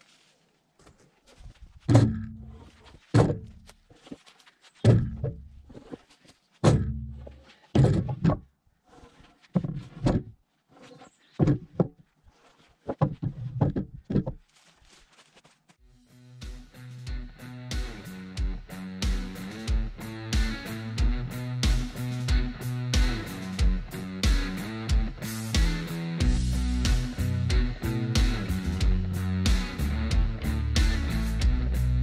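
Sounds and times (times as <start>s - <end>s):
wooden fence posts knocking: 1.7s - 4.2s, 4.8s - 8.6s, 11.4s - 12.0s, 12.8s - 14.5s.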